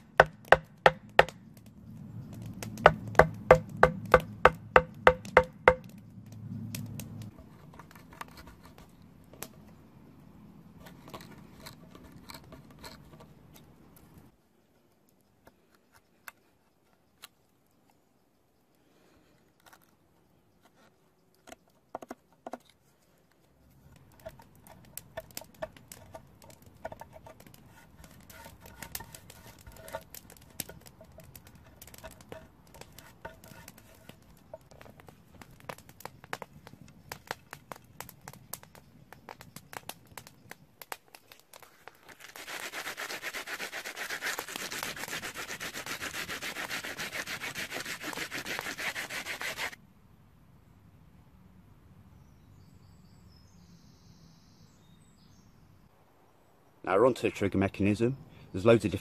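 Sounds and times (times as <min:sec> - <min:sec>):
knife scraping wood: 0:07.3 - 0:09.0, 0:10.8 - 0:13.6, 0:24.1 - 0:35.0, 0:41.5 - 0:49.8
sanding rasp on wood: 0:42.4 - 0:49.8.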